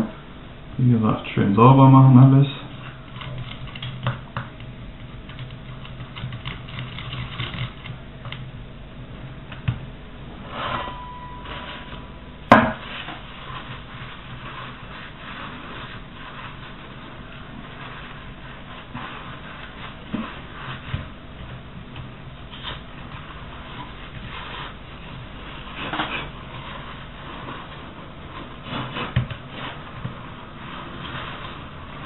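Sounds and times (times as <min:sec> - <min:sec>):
short squeak: 0:10.6 - 0:12.1.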